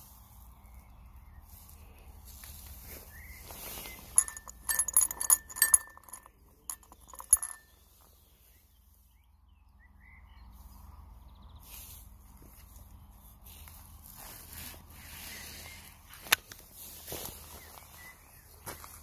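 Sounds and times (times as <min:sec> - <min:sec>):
shotgun handling clicks and clinks: 0:03.9 - 0:07.7.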